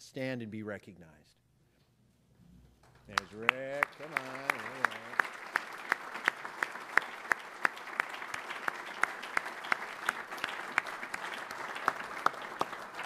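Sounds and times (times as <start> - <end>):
close hand claps: 2.8 - 13.0
audience applauding: 2.9 - 13.0.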